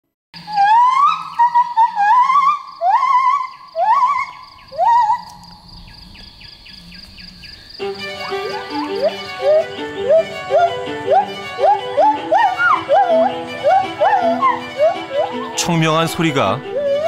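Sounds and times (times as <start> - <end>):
gibbon whooping: 0.4 - 5.4, 8.1 - 15.6, 16.6 - 17.0
soft music with held notes: 7.8 - 17.0.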